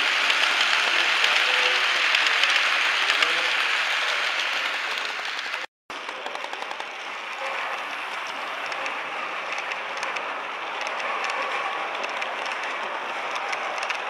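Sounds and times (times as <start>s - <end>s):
model train wheels rattling: 0.0s - 14.0s.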